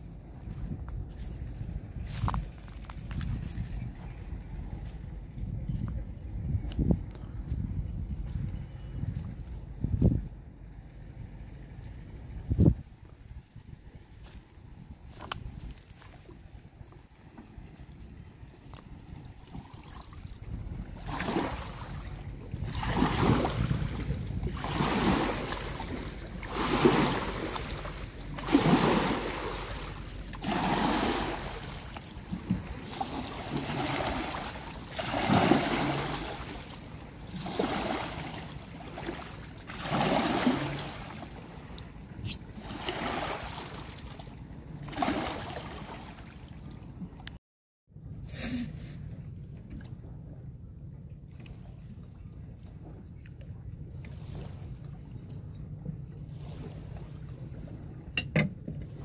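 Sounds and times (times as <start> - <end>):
low steady rumble: 0.0 - 44.9, 45.7 - 59.0
water splashing against boat hull: 15.1 - 47.3.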